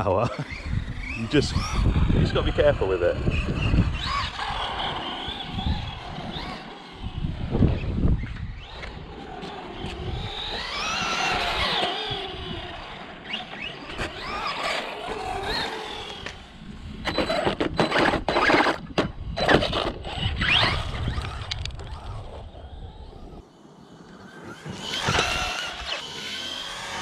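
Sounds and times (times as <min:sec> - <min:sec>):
electric motor whining: 0:00.3 - 0:27.0
toy truck clattering on tarmac: 0:08.4 - 0:22.8.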